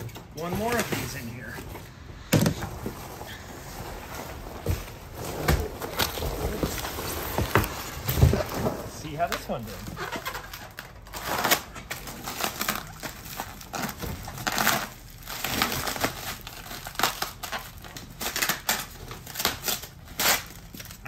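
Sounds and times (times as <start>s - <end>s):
plastic wrap crinkling: 0.5s - 21.0s.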